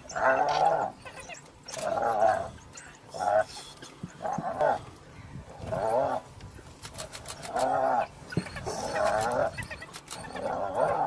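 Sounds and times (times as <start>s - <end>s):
sharp clicks: 6.8s - 7.7s, 8.4s - 10.4s
hyena giggling squeals: 7.8s - 11.0s.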